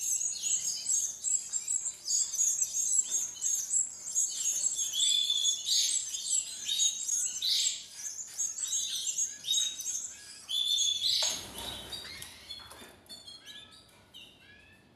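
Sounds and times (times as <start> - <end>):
nestlings begging chirps: 0.0 - 14.6.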